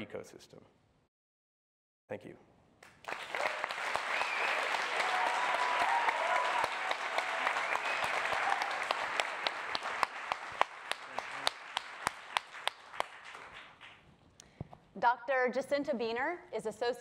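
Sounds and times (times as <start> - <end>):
audience applauding: 2.8 - 14.1.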